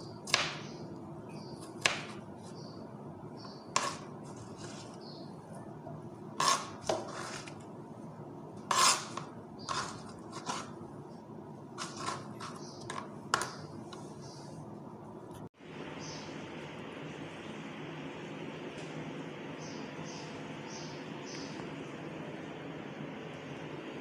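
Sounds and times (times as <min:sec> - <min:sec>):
knife chopping on plastic board: 0:00.3 - 0:00.8, 0:01.8 - 0:02.2, 0:03.7 - 0:04.8.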